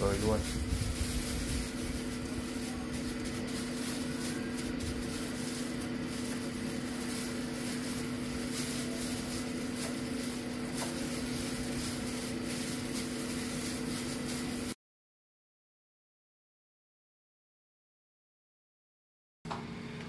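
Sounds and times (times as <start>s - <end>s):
air fryer fan humming: 0.0s - 14.8s, 19.5s - 20.0s.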